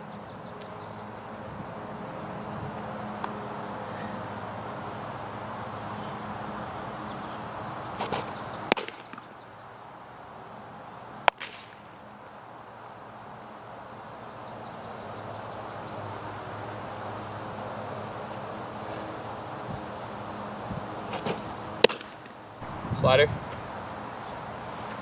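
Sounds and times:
ball snapping into glove: 8.0s - 9.3s, 11.2s - 11.8s, 21.1s - 22.3s
baseball smacking into mitt: 8.0s - 9.3s, 11.2s - 11.8s, 21.1s - 22.3s.

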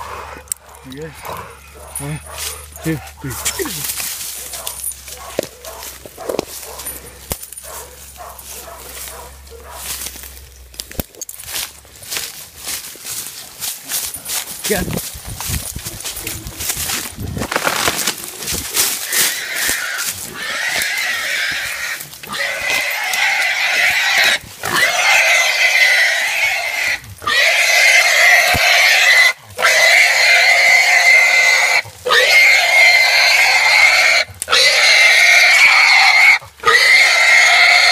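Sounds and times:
hog squealing loudly: 19.0s - 37.9s.

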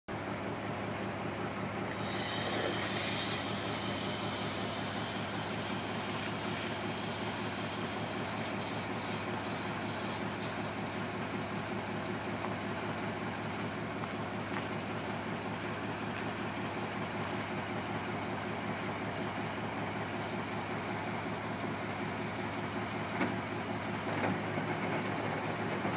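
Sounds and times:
diesel engine running: 0.1s - 25.9s
loud hiss: 1.8s - 11.7s.

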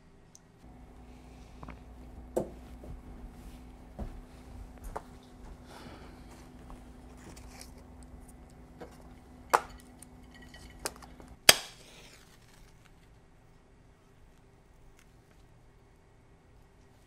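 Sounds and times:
glass clinking on counter: 9.6s - 11.1s.

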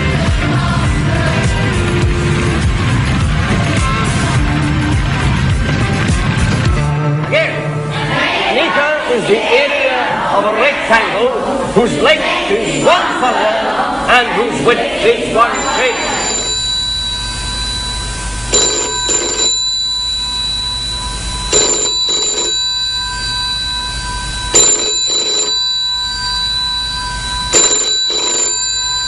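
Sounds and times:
faint steady high tone: 15.5s - 29.0s
telephone double ring: 15.6s - 29.0s.

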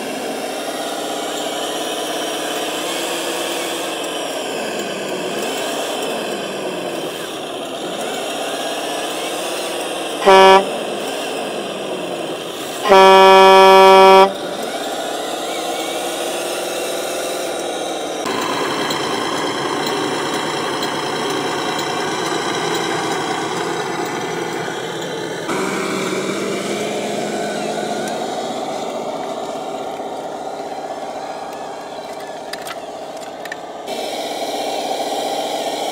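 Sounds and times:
toy truck engine running: 0.0s - 35.9s
truck horn blast: 10.2s - 11.1s, 12.7s - 14.9s.

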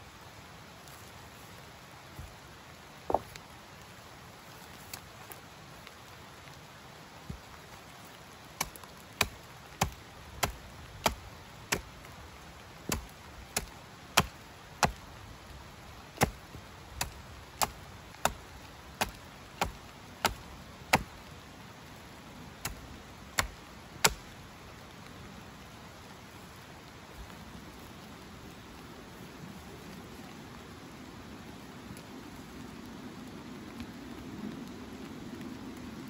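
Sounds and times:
tool chopping wood knocks: 3.1s - 3.4s, 12.9s - 15.0s, 19.0s - 21.1s, 23.4s - 24.2s.

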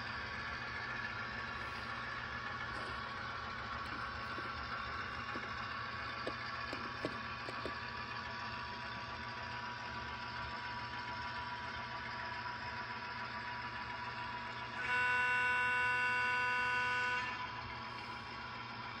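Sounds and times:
model train mechanical hum: 0.0s - 19.0s
model wheels clicking over rail joints: 3.7s - 8.0s
locomotive horn blast: 14.8s - 17.4s.

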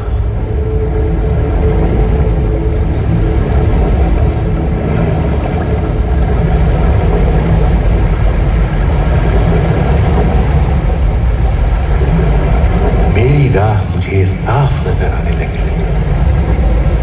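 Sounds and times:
low rumble over loudspeakers: 0.0s - 17.0s
narration: 13.1s - 15.9s.

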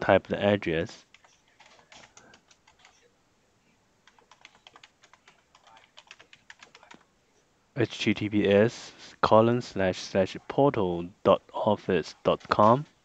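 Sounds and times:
faint keyboard typing: 0.9s - 3.1s, 4.0s - 7.4s.

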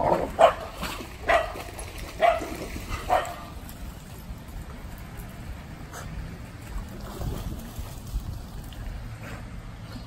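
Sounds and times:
dog barking: 0.4s - 0.6s, 1.2s - 1.6s, 2.2s - 2.5s, 3.1s - 3.4s.

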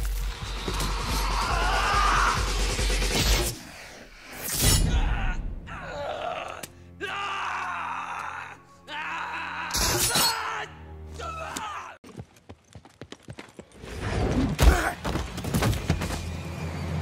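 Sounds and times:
film soundtrack music: 0.0s - 12.0s.

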